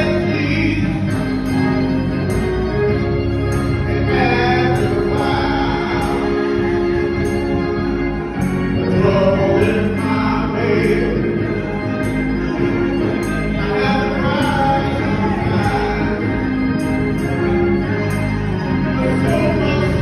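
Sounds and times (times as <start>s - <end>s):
man singing: 0.0s - 1.7s, 3.9s - 7.2s, 8.8s - 11.9s, 13.4s - 17.3s, 18.9s - 20.0s
voices sustaining sung notes: 0.0s - 20.0s.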